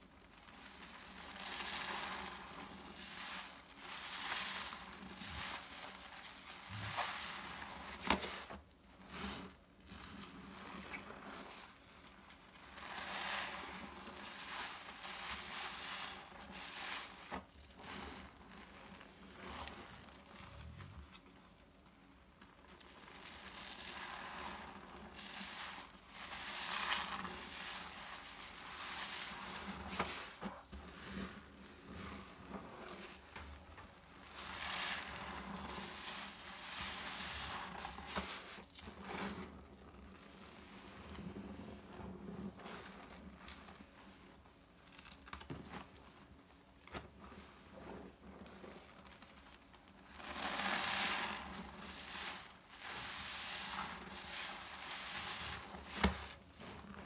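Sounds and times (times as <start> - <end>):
foam crackling: 0.1 - 8.6, 22.6 - 39.4, 48.4 - 57.0
wet sponge squelching: 0.4 - 18.6, 22.8 - 33.4, 34.0 - 40.1, 46.9 - 57.0.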